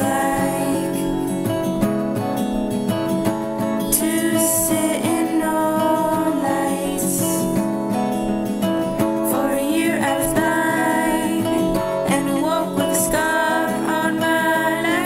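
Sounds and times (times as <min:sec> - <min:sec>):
person singing: 0:00.0 - 0:01.7, 0:03.9 - 0:07.8, 0:09.2 - 0:15.0
strummed acoustic guitar: 0:00.0 - 0:15.0.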